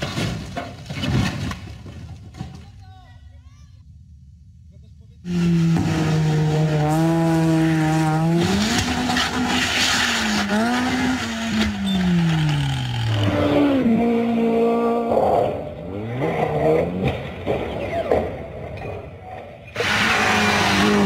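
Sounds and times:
car crash scraping and skidding: 0.0 - 2.5, 5.3 - 14.0, 16.3 - 21.0
rally car engines revving: 5.2 - 21.0.

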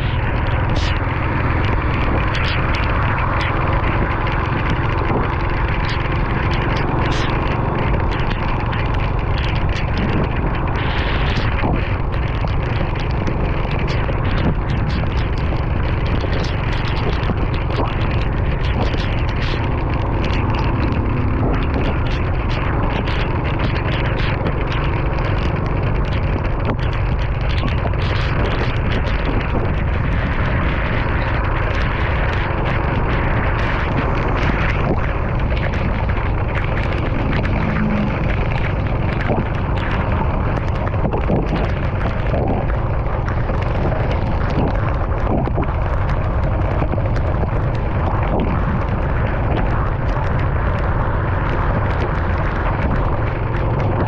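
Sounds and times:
rain ticking: 0.0 - 54.0
road and wind rumble: 0.0 - 54.0.

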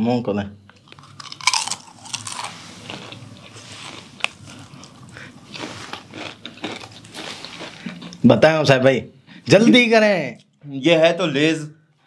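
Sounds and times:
chewing: 0.7 - 8.2
person crunching potato chip: 0.8 - 8.2.

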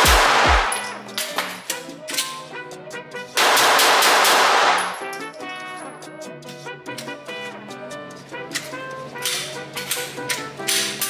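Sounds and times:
pistol shots ringing out: 0.0 - 1.6, 3.4 - 5.1
background music: 0.0 - 11.0.

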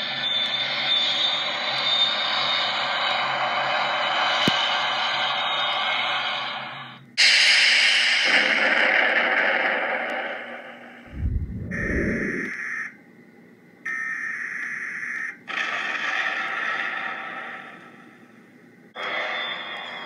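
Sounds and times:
hiss: 1.6 - 10.5
steady high whine: 7.2 - 13.0
short low rumble: 11.1 - 12.5
electronic tone blasts: 11.1 - 12.9.

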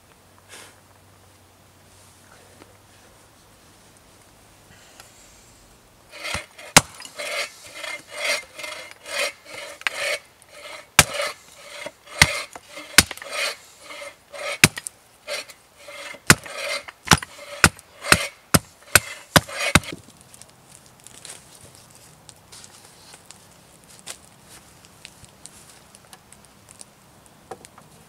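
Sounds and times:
hatchet scraping wood: 6.1 - 20.0.

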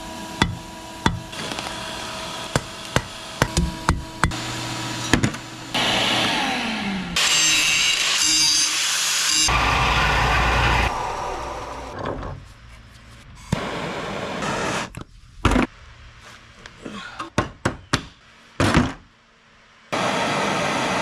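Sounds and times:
angle grinder cutting steel: 0.1 - 10.9
hammer striking steel on anvil: 0.4 - 1.3, 2.5 - 4.4.

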